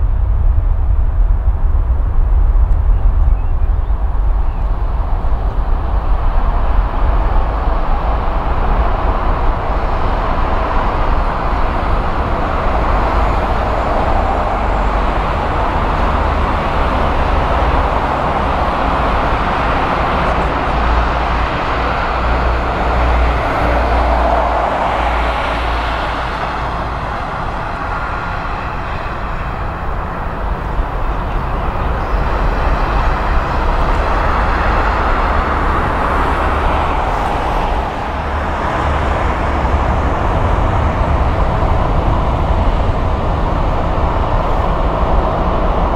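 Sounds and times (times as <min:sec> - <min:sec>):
jet engines roaring: 0:00.0 - 0:45.9.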